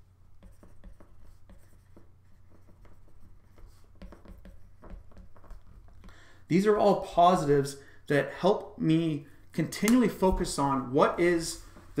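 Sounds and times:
stylus tapping and scratching on glass: 0.3 - 6.1.

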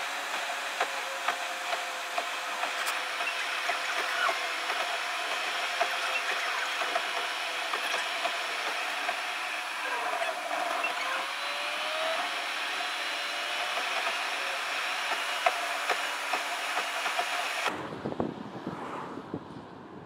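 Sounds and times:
car road and engine noise: 0.0 - 20.0.

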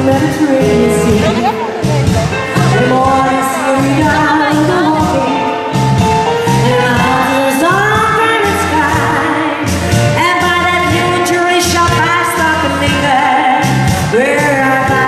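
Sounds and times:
woman singing into a microphone: 0.0 - 1.8, 2.6 - 5.6, 6.5 - 15.0
backing music with bass beat: 0.0 - 11.2.

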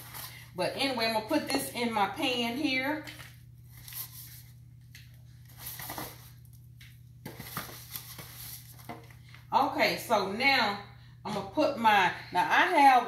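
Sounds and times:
steady low hum: 0.0 - 13.0
foil pan crinkling and tapping: 4.9 - 9.4.

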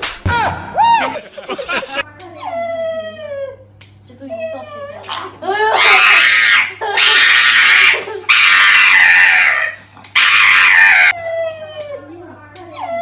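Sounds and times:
dog howling: 5.7 - 12.1
shrill screams: 5.8 - 11.2.

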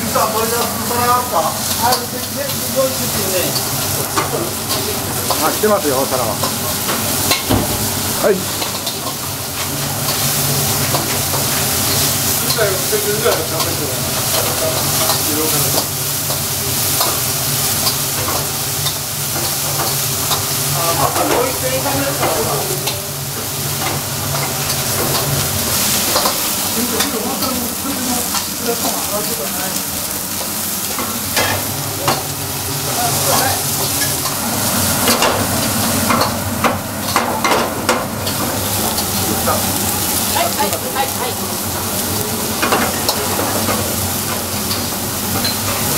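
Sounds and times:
food sizzling in woks: 0.0 - 45.9.

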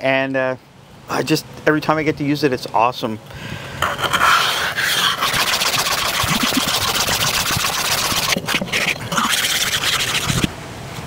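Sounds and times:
block scraping steel griddle: 3.8 - 10.5.

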